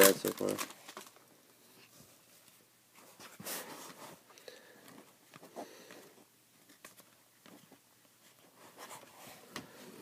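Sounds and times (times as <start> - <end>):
foil wrapper rustling: 0.0 - 1.2.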